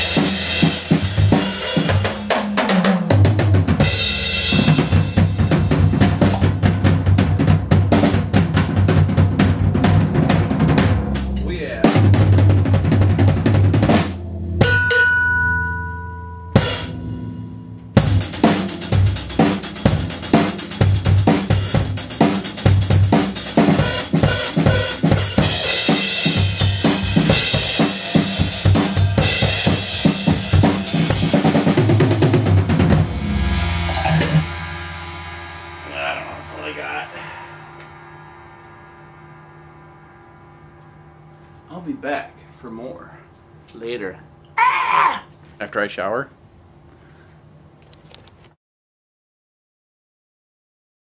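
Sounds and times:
cymbals ringing: 0.0s - 2.8s, 3.8s - 6.9s, 14.0s - 31.8s, 32.9s - 44.4s
drum kit playing: 0.0s - 43.2s.

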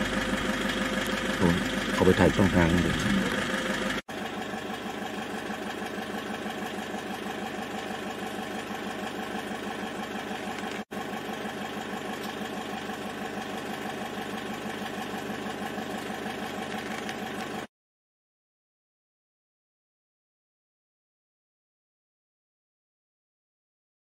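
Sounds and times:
vehicle engine idling: 0.0s - 17.7s.

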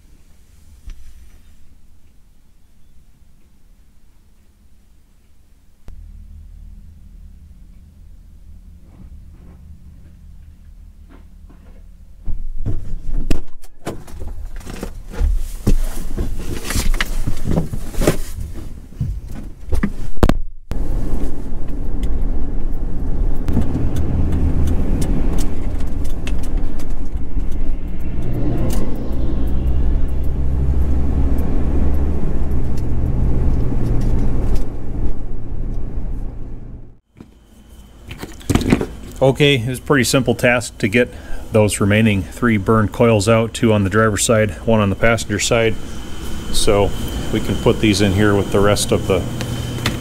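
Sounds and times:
truck engine running: 5.9s - 13.2s, 20.7s - 50.0s.

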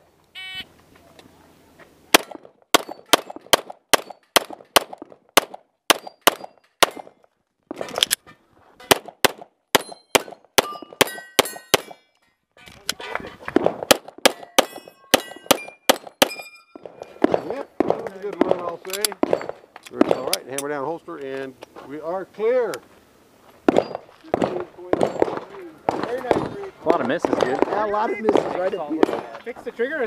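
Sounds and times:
pistol shots: 2.1s - 7.1s, 8.9s - 12.0s, 13.6s - 18.5s, 23.7s - 26.5s, 27.1s - 29.3s
steel plate target ringing: 2.8s - 4.5s, 5.9s - 7.2s, 9.8s - 12.2s, 14.3s - 17.7s.

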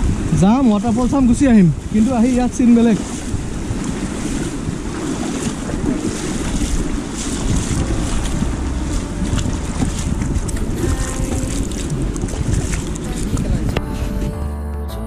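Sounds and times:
wind buffeting microphone: 0.0s - 14.4s
stream running over stones: 3.8s - 14.0s.

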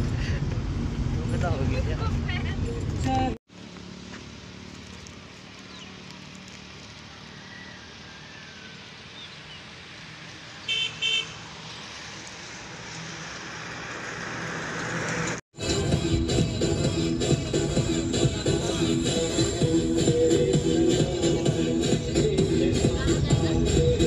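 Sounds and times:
low engine hum: 0.0s - 10.7s
road noise inside car: 0.0s - 15.4s
car horn toots: 10.7s - 11.4s.

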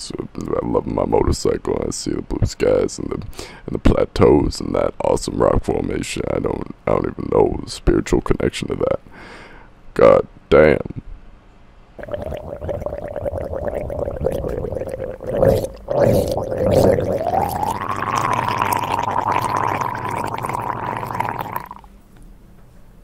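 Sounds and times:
person making buzzing gargling noise: 12.0s - 21.9s.

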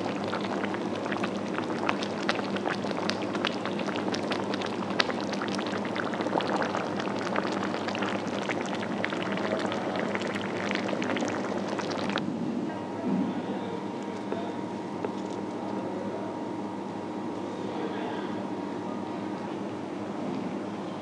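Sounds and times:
soup boiling with bubbles popping: 0.0s - 12.2s, 15.0s - 15.7s.

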